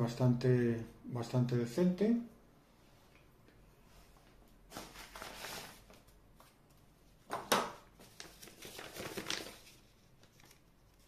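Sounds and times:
paper rustling and crackling: 4.7 - 6.6, 7.3 - 11.0.

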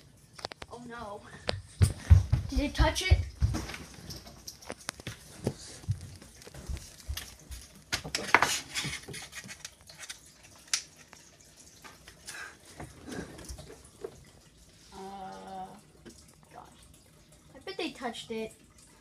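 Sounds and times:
footsteps on wooden floor: 1.4 - 3.9, 5.0 - 7.7
clicks and rustles at desk: 3.4 - 11.3.

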